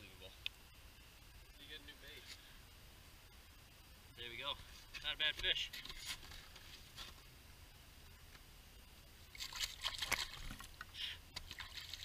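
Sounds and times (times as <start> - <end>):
water splashing: 9.3 - 12.0.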